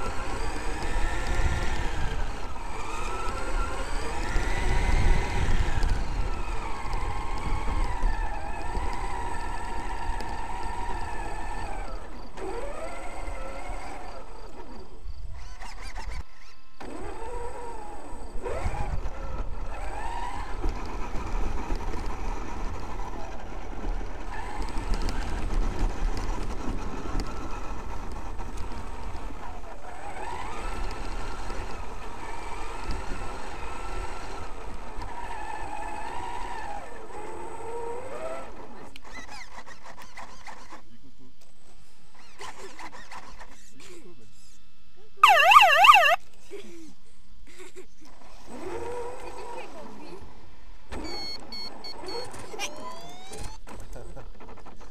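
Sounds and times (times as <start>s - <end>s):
electric motor and gears whining: 0.0s - 14.6s.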